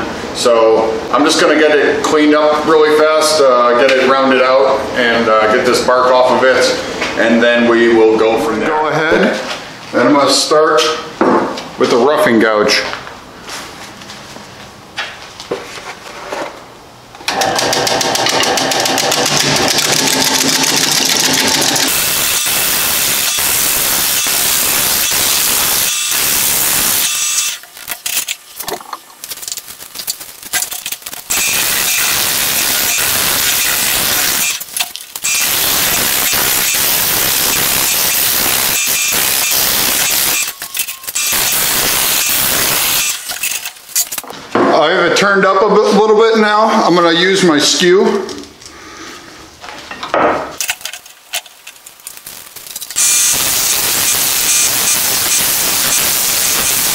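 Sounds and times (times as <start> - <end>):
gouge cutting wood on a lathe: 17.3 - 24.3.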